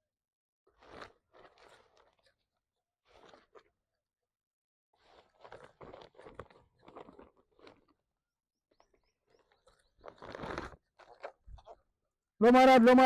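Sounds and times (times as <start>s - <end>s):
monkey chewing food: 5.0s - 8.0s.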